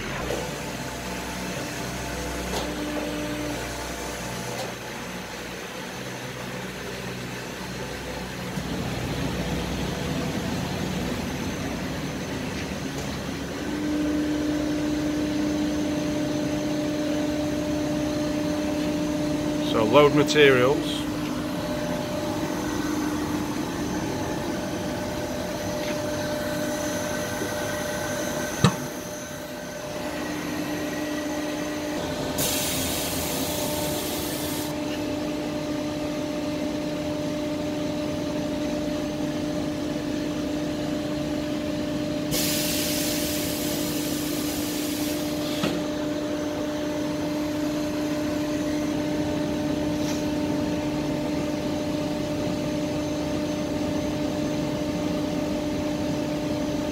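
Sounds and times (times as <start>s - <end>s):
machine hum with held tones: 8.6s - 42.3s
compressed air hiss: 32.4s - 34.7s, 42.3s - 45.8s.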